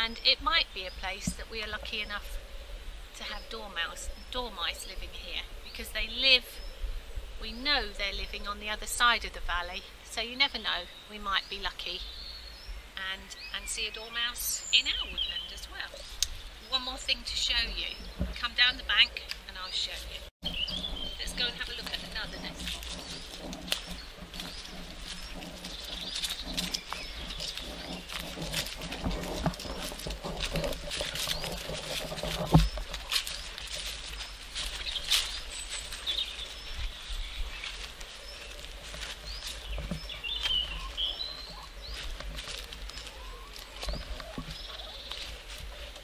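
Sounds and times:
birds chirping: 0.0s - 46.0s
footsteps on grass: 15.0s - 46.0s.

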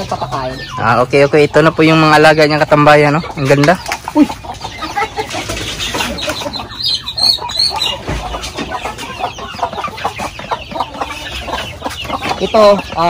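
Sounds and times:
chickens clucking: 0.0s - 13.0s
higher chicken calls: 3.2s - 13.0s.

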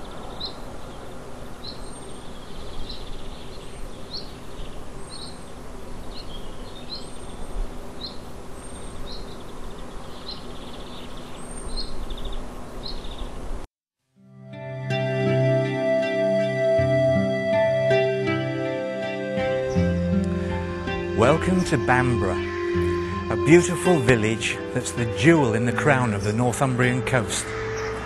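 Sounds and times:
bird chirping: 0.0s - 13.4s, 19.6s - 28.0s
music: 14.2s - 28.0s.

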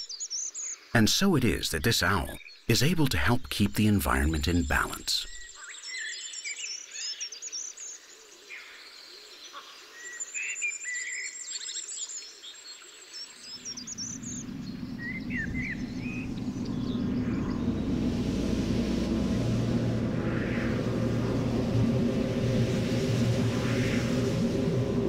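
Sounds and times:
small birds chirping: 10.0s - 18.1s
low rumble: 13.6s - 25.0s.

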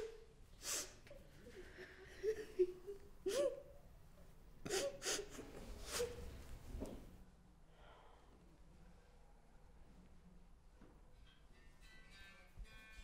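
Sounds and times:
sharp sniffs: 0.0s - 1.2s, 4.7s - 6.4s
woman crying: 1.4s - 3.8s.

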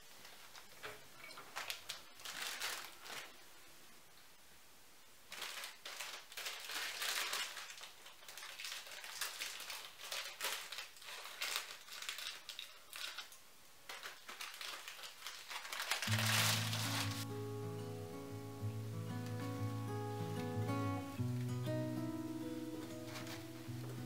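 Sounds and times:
plastic packaging crinkling: 0.1s - 3.5s, 5.3s - 17.3s, 22.8s - 24.0s
scissors cutting plastic: 22.9s - 23.6s.

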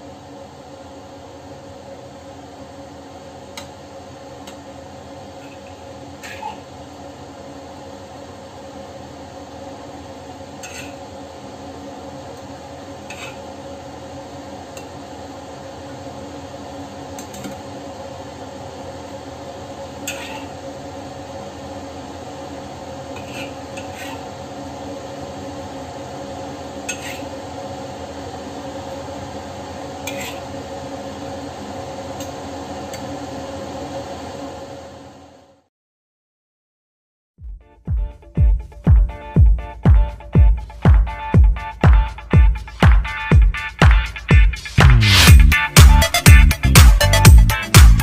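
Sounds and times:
spatula scraping wok and bowl: 10.6s - 11.0s, 13.0s - 13.5s, 20.0s - 20.6s, 23.1s - 24.3s, 26.8s - 27.3s, 30.0s - 30.5s
steady hum: 37.8s - 48.0s.

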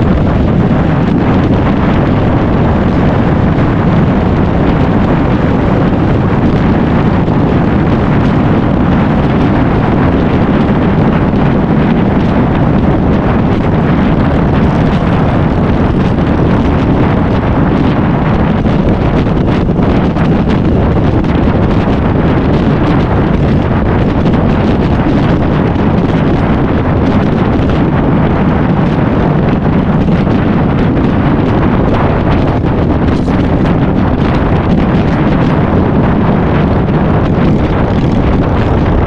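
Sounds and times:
motorcycle engine: 0.0s - 29.3s, 30.0s - 39.0s
road noise: 0.0s - 39.0s
wind rush over microphone: 0.0s - 39.0s.

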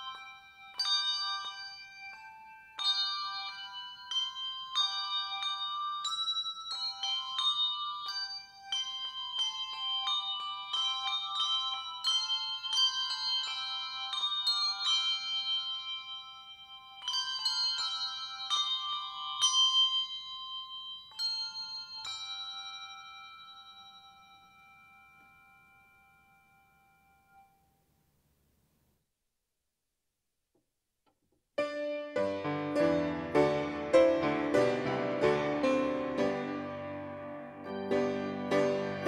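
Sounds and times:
handbell choir ringing: 0.0s - 27.6s, 32.2s - 39.0s.

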